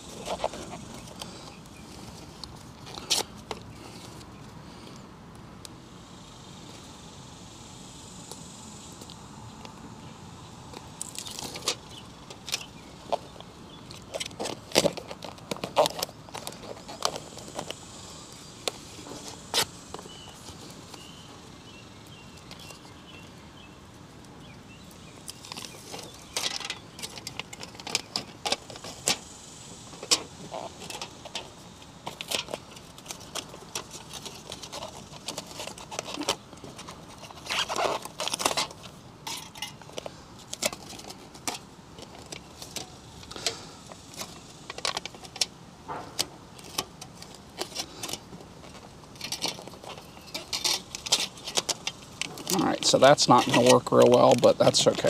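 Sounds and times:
foil tape crinkling: 0:10.8 - 0:21.1, 0:29.9 - 0:55.0.

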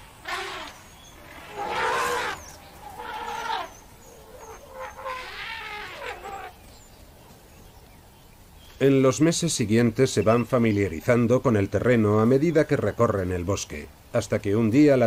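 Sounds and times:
animal crying: 0:00.2 - 0:06.6.

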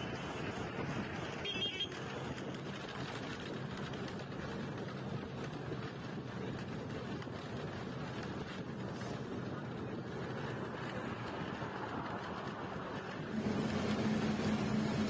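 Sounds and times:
bus engine and road noise: 0:00.0 - 0:15.0.

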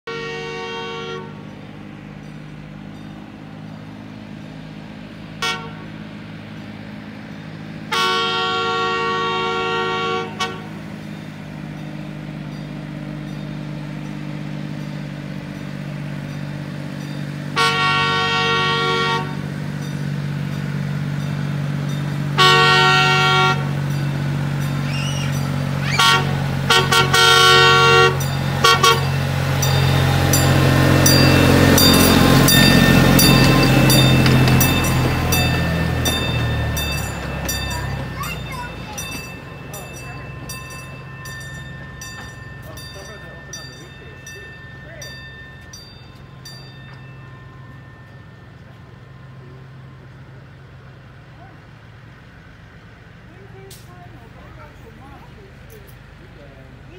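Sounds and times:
train horn blasts: 0:00.1 - 0:01.5, 0:05.4 - 0:06.0, 0:07.8 - 0:10.8, 0:17.5 - 0:19.5, 0:22.3 - 0:23.9, 0:24.9 - 0:40.2
locomotive engine running: 0:00.1 - 0:56.9.

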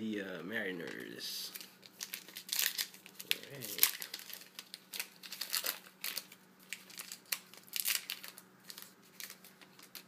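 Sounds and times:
foil wrapper crinkling: 0:00.8 - 0:10.0.

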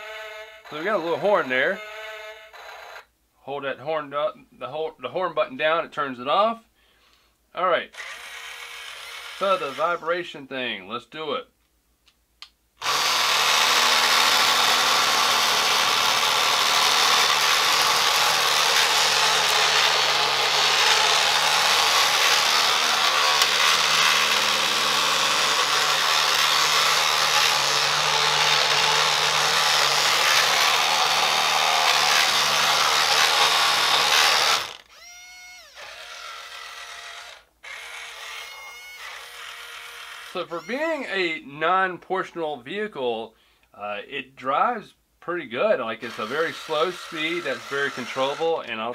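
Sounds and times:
drill-like vibration buzz: 0:00.0 - 0:03.1, 0:08.0 - 0:10.1, 0:12.8 - 0:40.8, 0:46.0 - 0:48.7.

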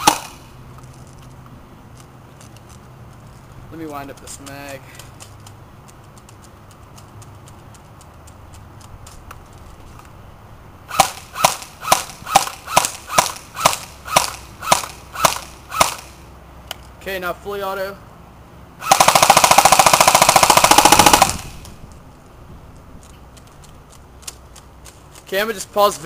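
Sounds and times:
airsoft gun shots: 0:00.0 - 0:00.5, 0:10.9 - 0:16.2, 0:18.8 - 0:21.8.

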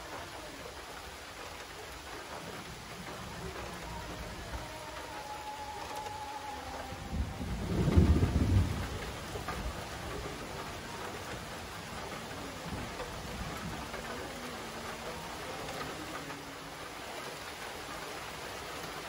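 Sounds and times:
steady rain: 0:00.0 - 0:19.0
thunder rolling: 0:02.9 - 0:16.5.

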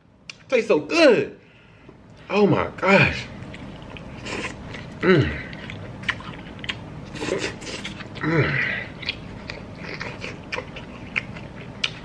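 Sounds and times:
person chewing and lip-smacking: 0:03.3 - 0:12.0
person humming briefly: 0:05.0 - 0:05.5, 0:08.2 - 0:08.8.

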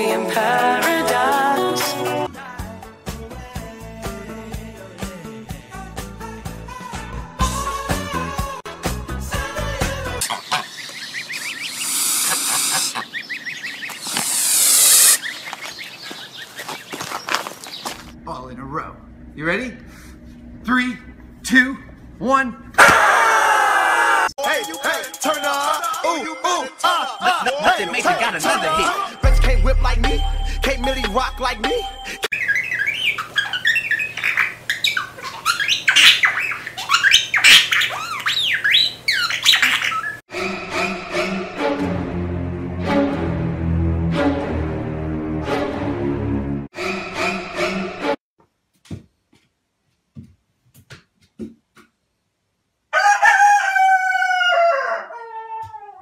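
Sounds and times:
goslings peeping: 0:10.3 - 0:16.8, 0:32.4 - 0:40.2
goose hissing: 0:11.4 - 0:13.0, 0:13.9 - 0:15.3
budgerigar chattering: 0:32.4 - 0:40.2.

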